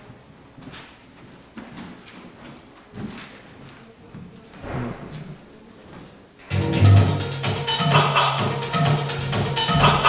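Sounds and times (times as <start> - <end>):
footsteps on stage floor: 0.0 - 6.5
low thump: 4.6 - 5.4.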